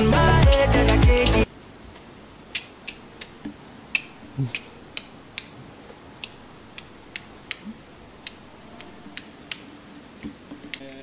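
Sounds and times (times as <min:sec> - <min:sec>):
light sharp clicks: 0:02.5 - 0:05.6.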